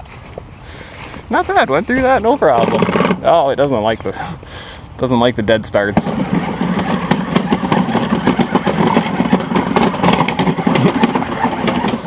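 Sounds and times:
electric toy truck motor clattering: 0:02.5 - 0:03.4, 0:06.0 - 0:12.0.

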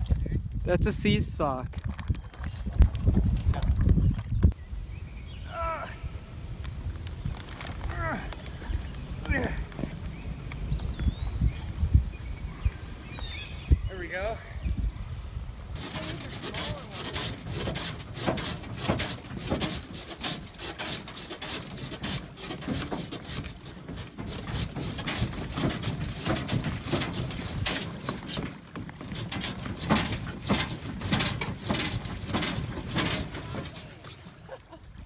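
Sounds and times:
rubbing noise on microphone: 0:15.7 - 0:34.3
footsteps on wooden dock: 0:15.8 - 0:34.4.

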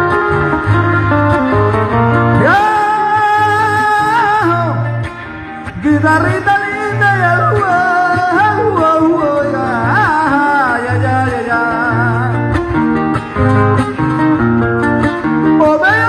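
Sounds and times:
bass line: 0:00.0 - 0:16.0
strummed guitars: 0:00.0 - 0:16.0
man singing through a pa: 0:02.3 - 0:05.0, 0:05.7 - 0:12.5, 0:15.5 - 0:16.0.

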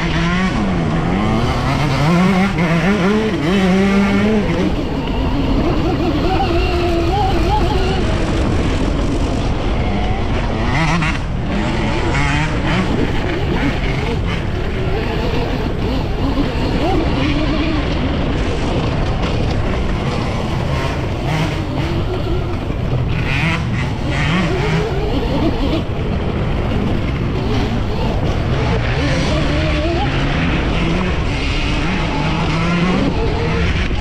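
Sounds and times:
steady low rumble: 0:07.0 - 0:29.0.

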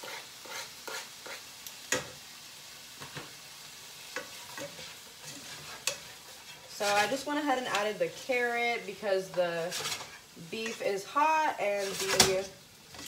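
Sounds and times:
meat sizzling in a pan: 0:00.0 - 0:13.0
tongs clicking against pan: 0:05.3 - 0:06.1.

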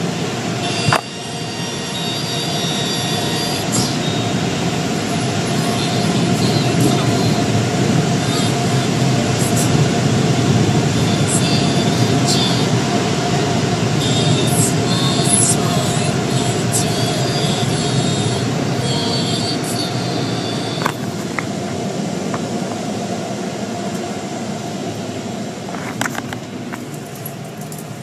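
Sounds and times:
high squeals: 0:00.0 - 0:20.9
car wash rushing and rumbling: 0:00.0 - 0:28.0.

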